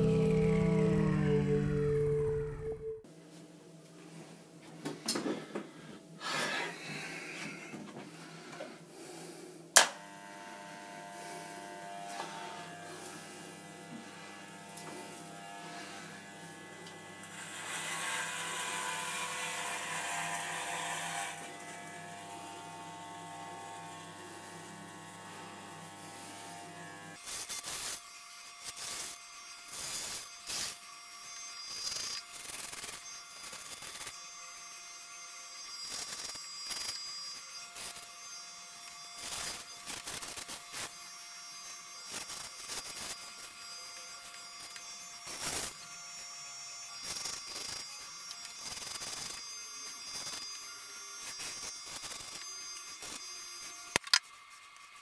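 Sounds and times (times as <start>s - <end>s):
electric hair clippers buzzing: 0.0s - 2.8s, 9.8s - 55.0s.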